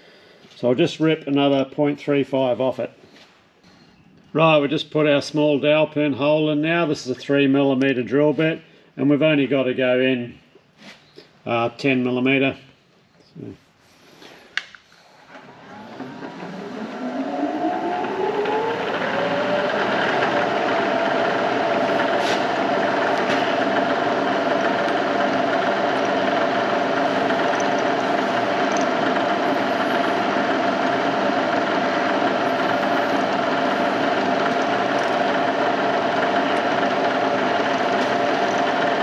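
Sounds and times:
milling machine spindle whine: 15.3s - 39.0s
drill bit boring steel: 15.7s - 39.0s.

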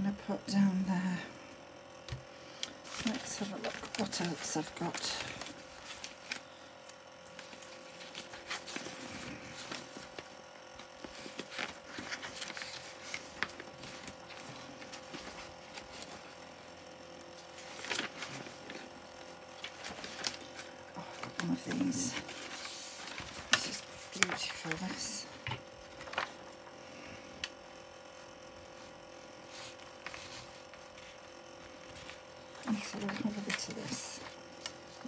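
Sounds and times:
electric fan humming: 0.0s - 35.0s
paper rustling and tapping: 19.6s - 26.4s, 31.8s - 34.3s.

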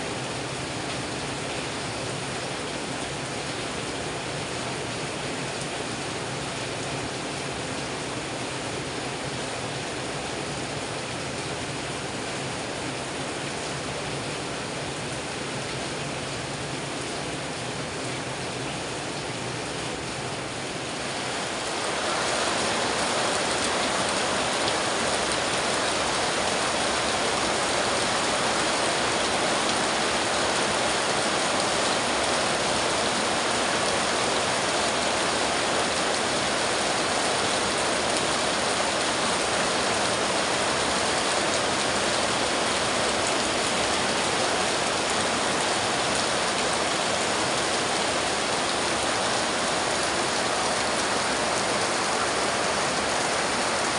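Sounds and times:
heavy rain on metal roof: 0.0s - 53.9s
water pouring off roof: 21.0s - 53.9s.

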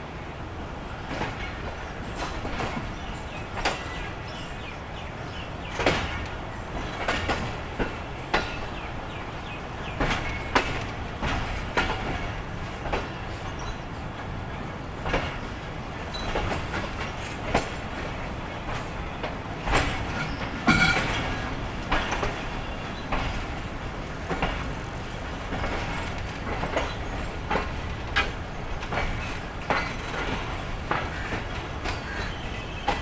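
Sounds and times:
train wheels rumbling on track: 0.0s - 33.0s
wheels clacking at rail joints: 0.6s - 33.0s.

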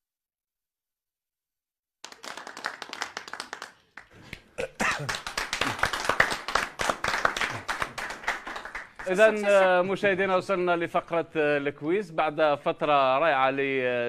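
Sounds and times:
people clapping: 2.0s - 9.6s.

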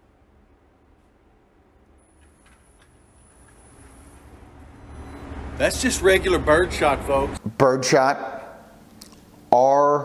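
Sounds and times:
thin high whine: 3.5s - 7.3s.

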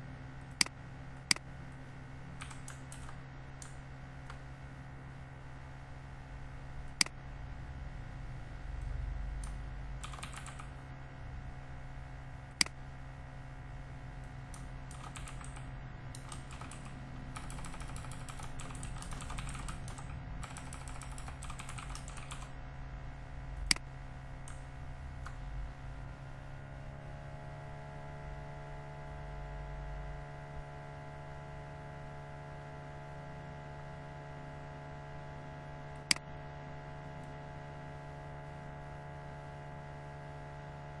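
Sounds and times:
steady hum: 0.0s - 41.0s
computer keyboard typing: 2.4s - 4.4s, 9.4s - 10.8s, 14.5s - 22.6s.

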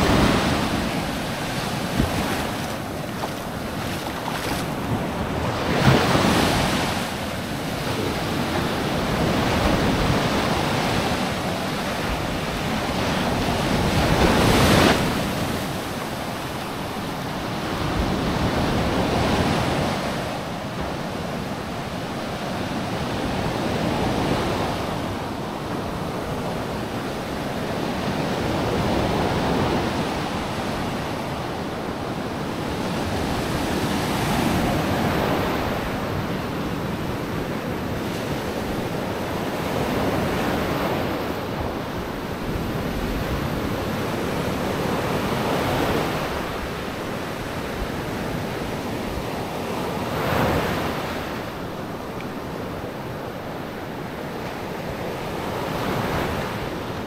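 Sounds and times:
sea waves breaking on sand: 0.0s - 20.5s.

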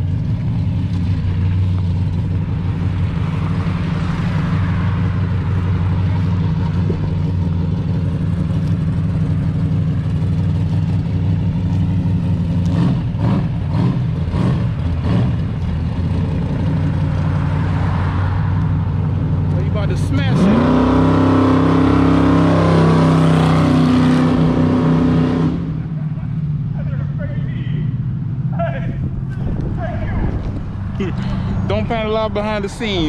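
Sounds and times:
car engine idling: 0.0s - 20.3s, 25.6s - 33.0s.

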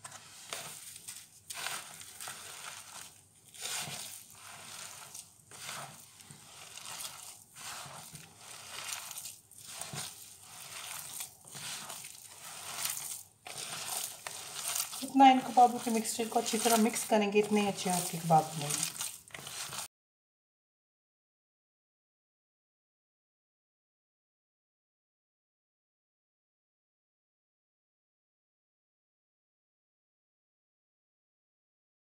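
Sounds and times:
hand kneading raw mince: 0.0s - 19.9s.

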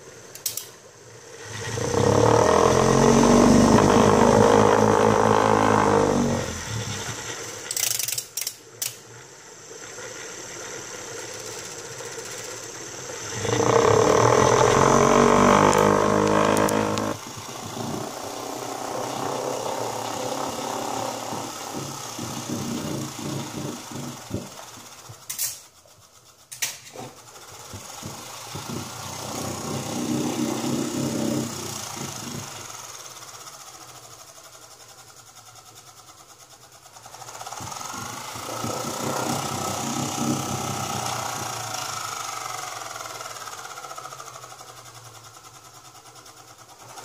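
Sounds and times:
electric motor whine: 1.3s - 7.7s, 12.8s - 24.9s, 28.0s - 33.1s, 37.1s - 44.4s.

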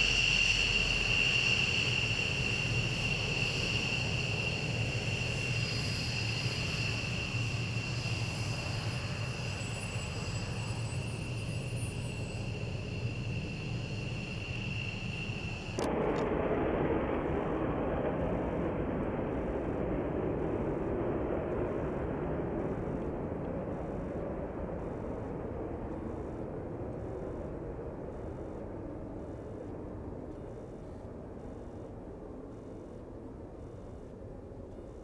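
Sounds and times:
jet engines whining: 0.0s - 16.3s.

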